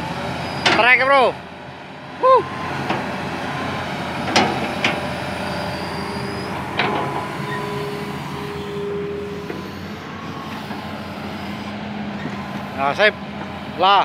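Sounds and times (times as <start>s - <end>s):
excavator diesel engine running: 0.0s - 14.0s
thin steady whine: 5.5s - 14.0s.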